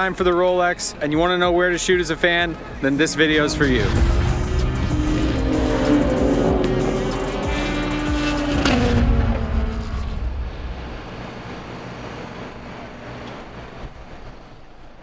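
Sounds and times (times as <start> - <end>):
faint steady rushing: 1.2 - 15.0
race car passing at speed: 3.0 - 12.4.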